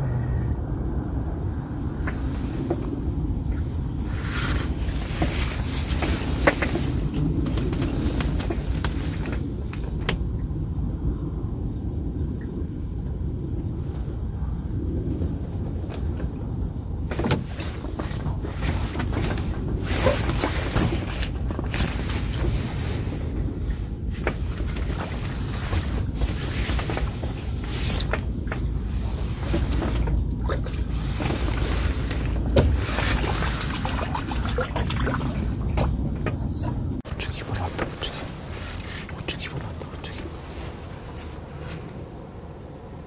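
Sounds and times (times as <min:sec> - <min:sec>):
steady low rumble: 0:00.0 - 0:43.0
rustling and handling noise: 0:02.0 - 0:10.2, 0:17.1 - 0:42.2.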